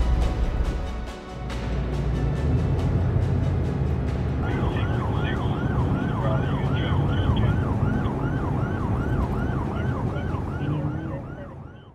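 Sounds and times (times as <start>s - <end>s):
heavy road traffic rumble: 1.4s - 11.9s
emergency siren yelping: 4.4s - 11.9s.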